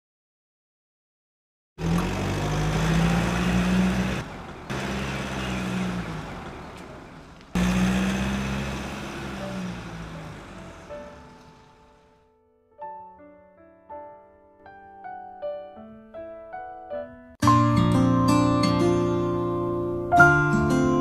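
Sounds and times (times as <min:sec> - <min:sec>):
diesel engine running: 0:01.8 - 0:12.2.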